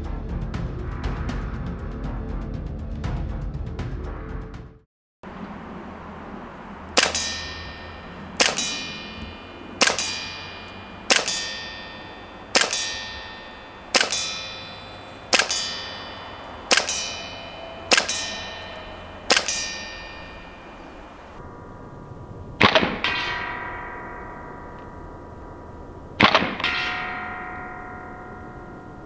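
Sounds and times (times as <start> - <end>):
airsoft pistol shots: 7.0 - 21.4, 26.2 - 26.8.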